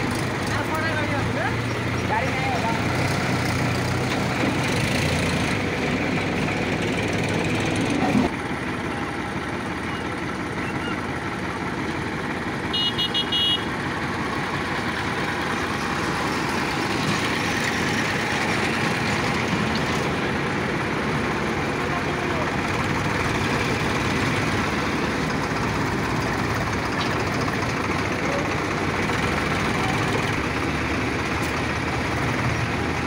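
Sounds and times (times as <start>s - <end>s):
diesel tractor engines droning: 0.0s - 33.0s
short horn beeps: 12.7s - 13.7s.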